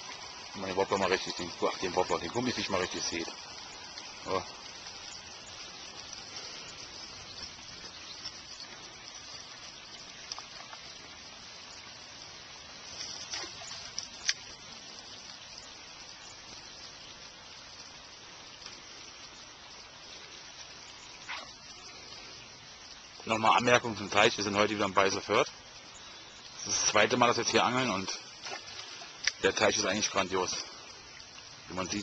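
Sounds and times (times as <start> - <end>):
light rain falling: 0.0 - 32.0
tiny ticks: 1.2 - 12.0, 12.8 - 22.3, 28.1 - 29.9.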